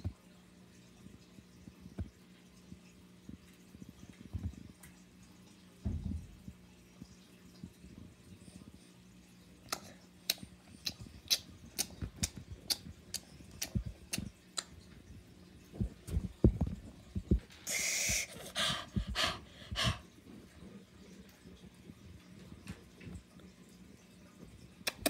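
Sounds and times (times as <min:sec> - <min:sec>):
short breathy bursts: 0:17.6 - 0:20.0.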